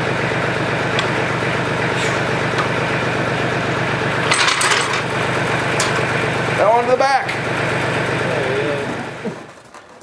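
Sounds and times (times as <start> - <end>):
steady engine-like drone: 0.0 - 9.5
metallic clatter: 4.2 - 6.1.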